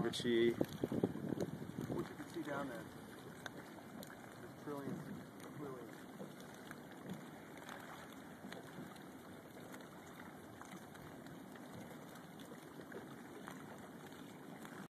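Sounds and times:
sea water lapping: 0:00.0 - 0:14.9.

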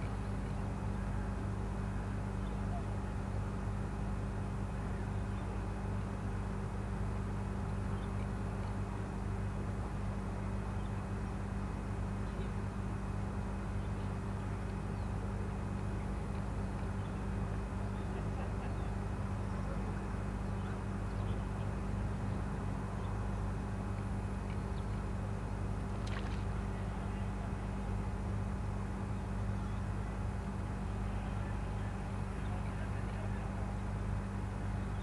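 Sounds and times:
low machine hum: 0:00.0 - 0:35.0.

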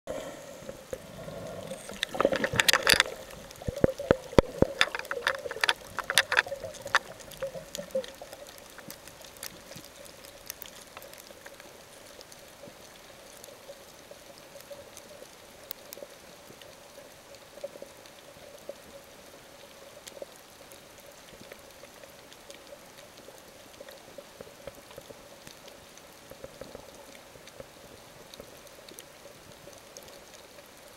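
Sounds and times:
faint steady hiss: 0:00.1 - 0:30.9
small crackles: 0:00.1 - 0:30.9
underwater bubbling and gurgling: 0:00.1 - 0:30.9
sharp clicks: 0:01.6 - 0:09.0.

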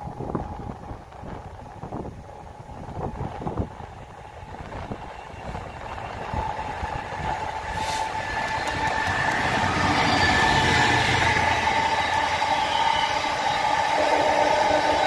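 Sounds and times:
diesel locomotive engine under load: 0:00.0 - 0:15.0
wagon wheels squealing: 0:07.7 - 0:15.0.

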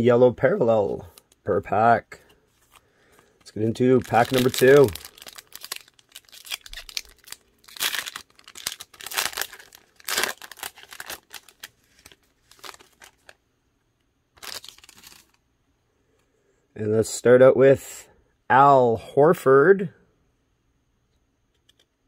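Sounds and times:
foil wrapper tearing and crinkling: 0:03.7 - 0:13.4, 0:14.4 - 0:15.4.

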